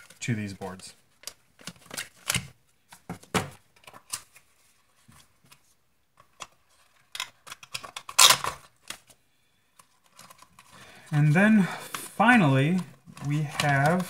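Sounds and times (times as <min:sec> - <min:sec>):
plastic bags and paper rustling: 0:09.9 - 0:14.0.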